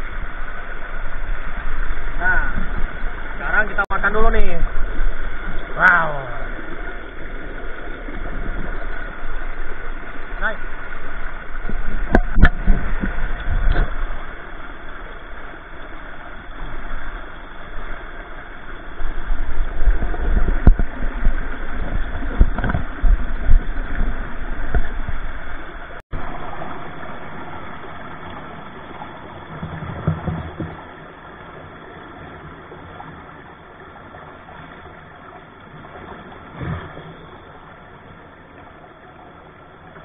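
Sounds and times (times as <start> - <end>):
low rumble: 0.0 - 31.0
stream flowing over rocks: 0.0 - 40.0.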